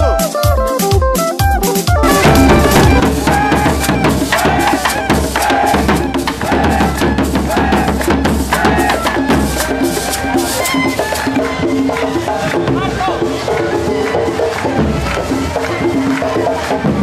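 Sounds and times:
hand drums beaten fast: 0:00.0 - 0:17.0
clacking strikes: 0:02.0 - 0:06.0
pitched melody line: 0:02.0 - 0:06.3.

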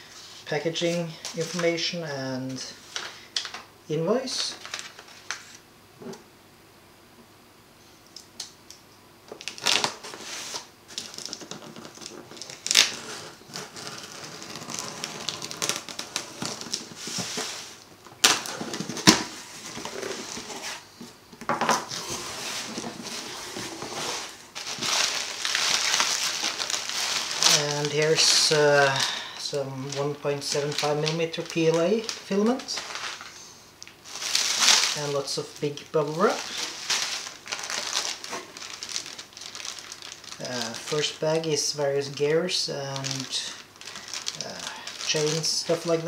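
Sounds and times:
bubble wrap crinkling: 0:02.5 - 0:05.6, 0:09.3 - 0:21.2, 0:21.8 - 0:46.0
packing tape tearing: 0:09.3 - 0:20.8, 0:21.8 - 0:29.0, 0:29.9 - 0:35.1, 0:36.2 - 0:41.1, 0:43.0 - 0:46.0
cardboard flaps rustling: 0:09.6 - 0:28.5.

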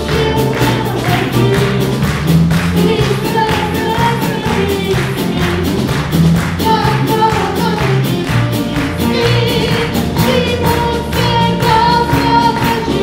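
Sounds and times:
band playing: 0:00.0 - 0:13.0
mixed voices singing: 0:06.7 - 0:13.0.

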